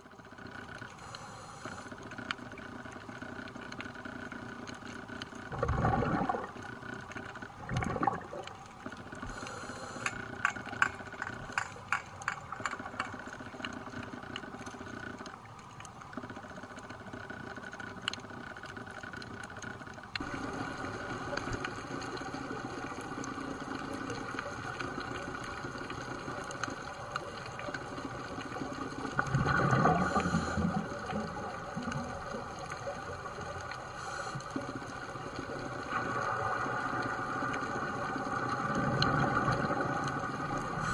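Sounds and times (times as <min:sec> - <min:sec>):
boat engine drone underwater: 0:00.0 - 0:40.9
diver's regulator bubbles: 0:05.0 - 0:09.6, 0:20.2 - 0:40.9.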